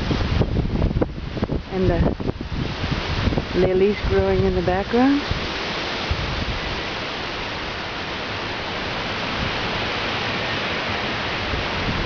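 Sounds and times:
strong wind blowing: 0.0 - 12.0.

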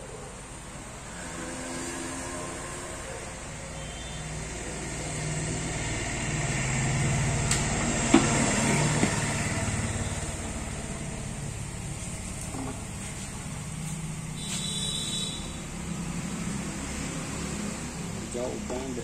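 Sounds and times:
passing vehicle rumble: 0.0 - 14.4, 15.5 - 19.0.

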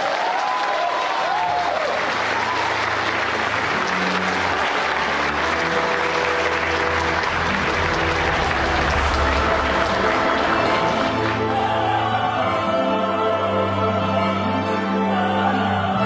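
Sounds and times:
audience applauding: 0.0 - 12.2
sliding instrumental notes: 2.2 - 16.0
music with sustained low notes: 3.1 - 16.0.

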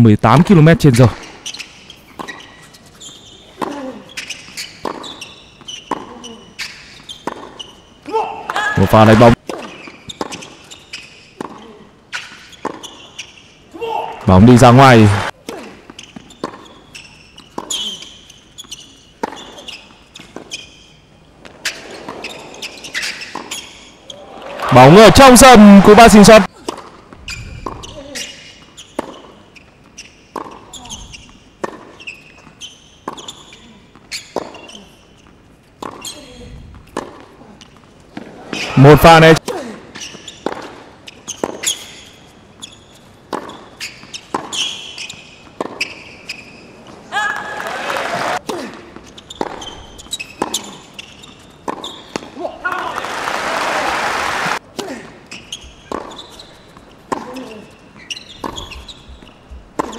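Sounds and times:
shoe squeaks on court: 1.1 - 8.1, 9.5 - 13.7, 15.9 - 24.2, 27.1 - 36.6, 38.5 - 47.0, 48.5 - 52.4, 55.2 - 59.9
tennis ball bouncing: 3.6 - 7.8, 9.4 - 11.6, 15.8 - 18.0, 18.6 - 20.6, 26.6 - 28.0, 28.9 - 36.1, 36.7 - 37.3, 40.4 - 41.8, 43.3 - 46.0, 48.9 - 52.4, 55.7 - 59.9
racket striking ball: 43.3 - 43.6, 55.9 - 56.2.

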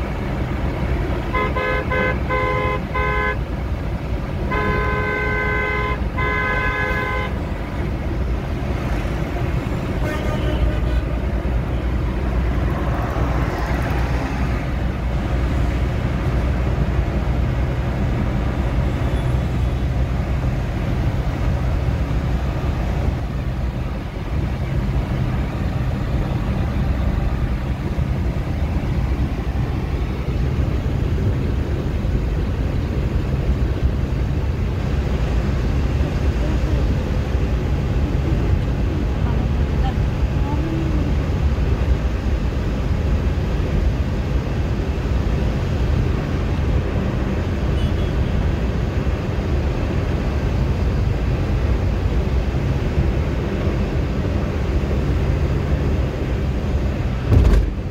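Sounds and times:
road and engine noise inside car: 0.0 - 57.9
vehicle horn blasts: 1.3 - 3.4, 4.5 - 7.4, 10.0 - 11.2.

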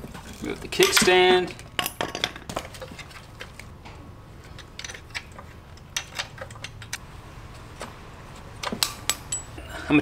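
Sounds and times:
steady low hum: 3.0 - 10.0.

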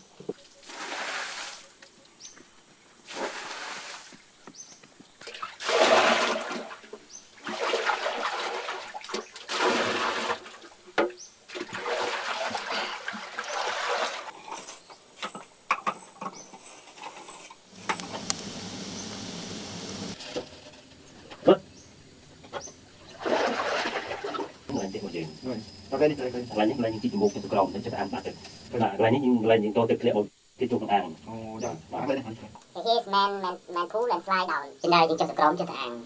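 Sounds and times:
water splashing into a pool: 0.4 - 1.8, 3.0 - 4.2, 5.2 - 14.3, 23.1 - 24.6.

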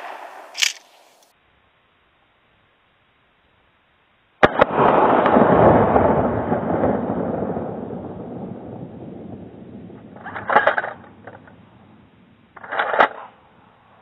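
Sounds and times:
shotgun blast with reverberation: 0.0 - 1.1.

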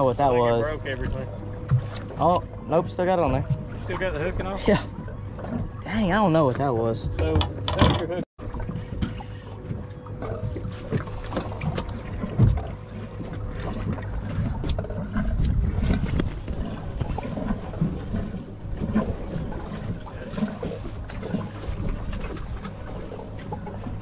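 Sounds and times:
water against hull: 0.0 - 24.0
wind rumble: 10.4 - 24.0.

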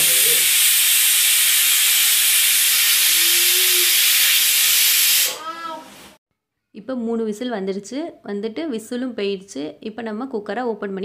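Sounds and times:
pressure cooker steam hiss: 0.0 - 6.2.

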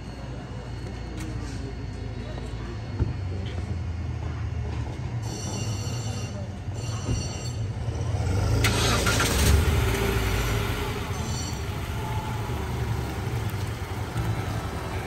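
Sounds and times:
vehicle engine running: 7.0 - 15.0.

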